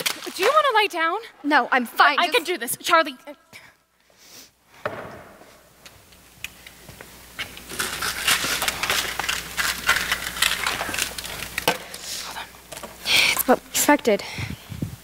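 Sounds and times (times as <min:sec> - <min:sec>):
rustling and crinkling handling: 0:07.6 - 0:13.6.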